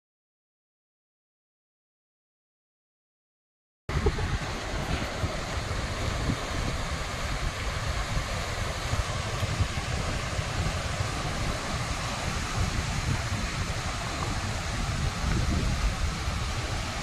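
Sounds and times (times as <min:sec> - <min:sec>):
surf washing onto beach: 0:03.9 - 0:17.0
wind buffeting microphone: 0:03.9 - 0:17.0.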